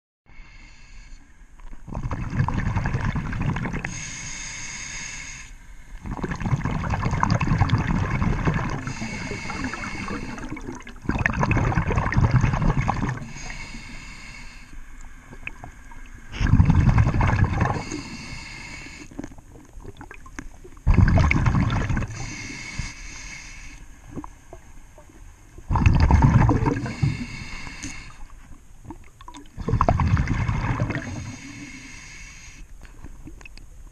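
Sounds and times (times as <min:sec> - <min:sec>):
regulator hissing on inhale: 0:00.3 - 0:01.4, 0:03.8 - 0:06.0, 0:08.8 - 0:10.7, 0:13.2 - 0:15.1, 0:17.7 - 0:19.2, 0:22.1 - 0:24.0, 0:26.8 - 0:28.4, 0:31.0 - 0:32.8
bubbles gurgling underwater: 0:01.9 - 0:04.0, 0:06.0 - 0:13.4, 0:15.3 - 0:18.0, 0:19.2 - 0:22.3, 0:25.6 - 0:27.2, 0:28.9 - 0:31.4.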